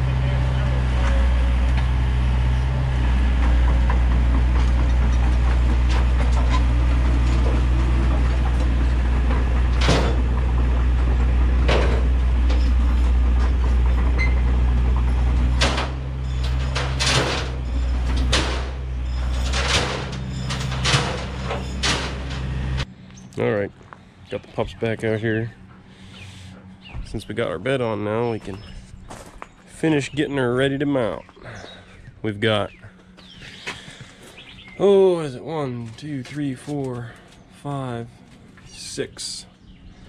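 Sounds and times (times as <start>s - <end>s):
diesel engine idling: 0.0s - 40.0s
metal clanks and knocks: 0.8s - 22.9s.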